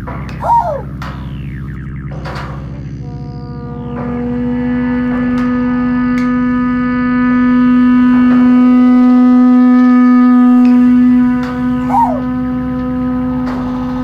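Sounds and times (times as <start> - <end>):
wavering squeal: 0.3 - 1.7, 11.6 - 12.5.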